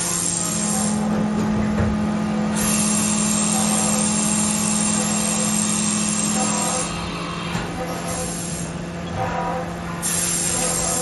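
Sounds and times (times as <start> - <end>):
hiss of coolant spray and cutting: 0.0 - 1.1, 2.5 - 7.3, 8.0 - 8.8, 10.0 - 11.0
machine spindle hum: 0.0 - 11.0.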